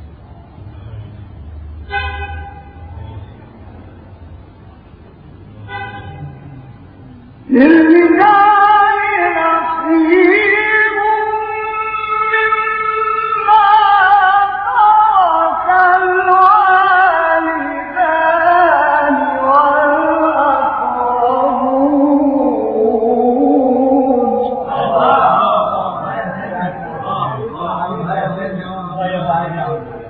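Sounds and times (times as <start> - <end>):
man chanting recitation: 7.4 - 30.0.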